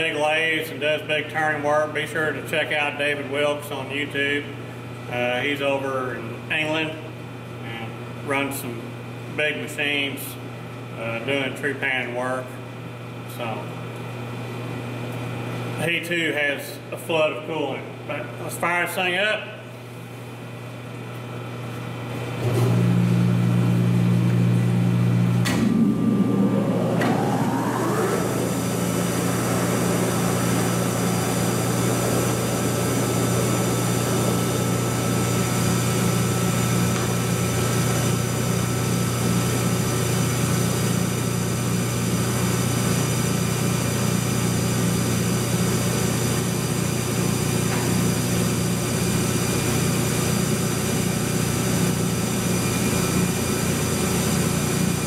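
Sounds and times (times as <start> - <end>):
lathe motor hum and whine: 21.2 - 55.0.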